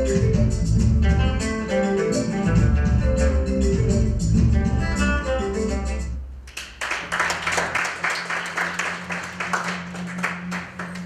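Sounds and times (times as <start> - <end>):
plucked guitar music: 0.0 - 6.2
audience applauding: 6.5 - 11.0.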